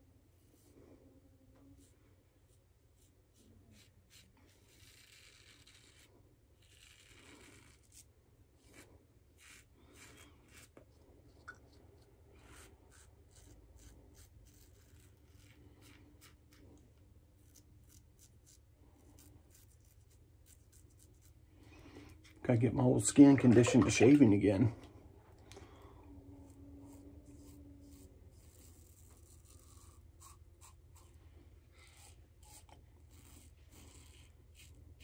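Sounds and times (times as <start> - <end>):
razor scratching stubble: 2.5 - 11.0, 12.4 - 16.7, 17.4 - 22.4, 26.4 - 31.2, 31.8 - 35.0.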